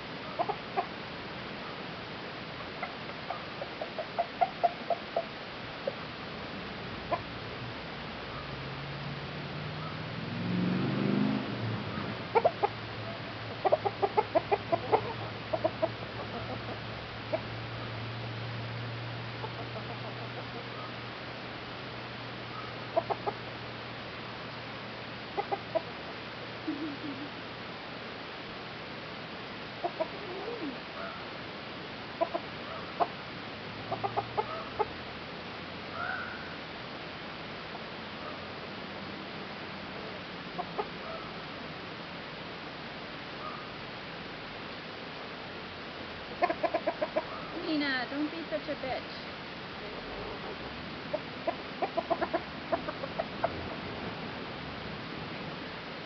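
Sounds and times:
chickens clucking: 0:00.2 - 0:01.0, 0:02.6 - 0:06.0, 0:07.0 - 0:07.3, 0:11.9 - 0:17.6, 0:19.3 - 0:21.0, 0:22.5 - 0:23.6, 0:25.3 - 0:27.6, 0:29.8 - 0:31.2, 0:32.1 - 0:33.2, 0:33.8 - 0:35.0, 0:40.0 - 0:41.4, 0:46.2 - 0:48.8, 0:49.8 - 0:54.4
long high chicken calls: 0:35.9 - 0:36.6.

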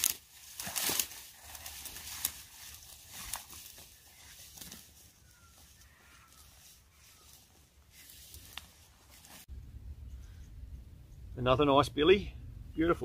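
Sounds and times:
footsteps through dry grass: 0:00.0 - 0:09.5.

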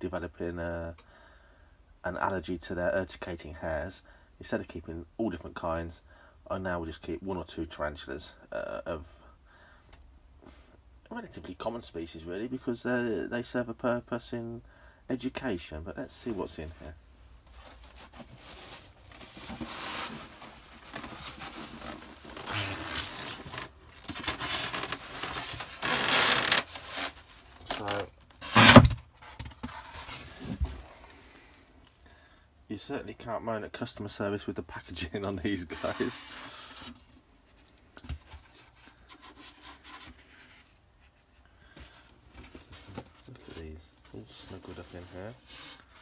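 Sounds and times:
foam rustling and tearing: 0:17.7 - 0:29.0, 0:35.6 - 0:36.4
foam lid scraping and squeaking: 0:17.8 - 0:29.0, 0:35.6 - 0:36.7.

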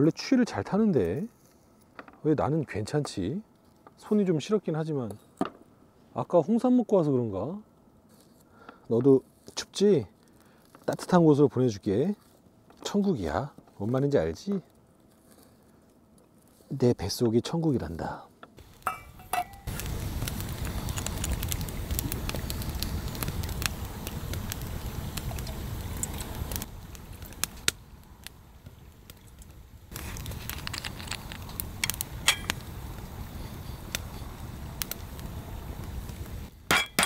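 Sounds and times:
fire crackling and popping: 0:00.0 - 0:37.0
wood fire rushing: 0:18.0 - 0:37.0.

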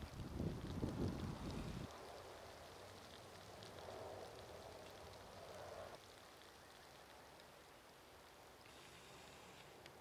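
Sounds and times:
soft outdoor hiss: 0:00.0 - 0:10.0.

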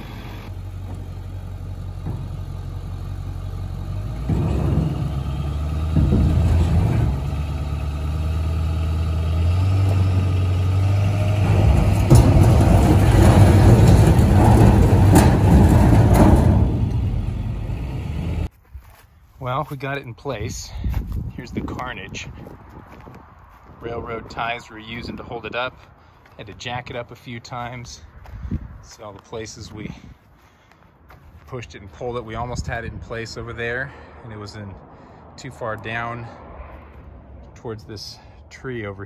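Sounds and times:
diesel engine revving: 0:00.0 - 0:18.5.

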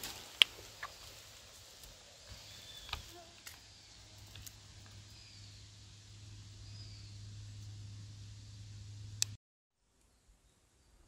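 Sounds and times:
clicks of movement through grass: 0:00.0 - 0:05.2.

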